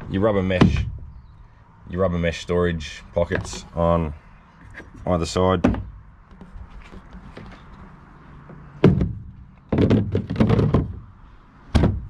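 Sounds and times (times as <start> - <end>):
hollow plastic knocks and thuds: 0.6 - 1.2, 5.6 - 7.8, 8.4 - 11.1, 11.7 - 12.0.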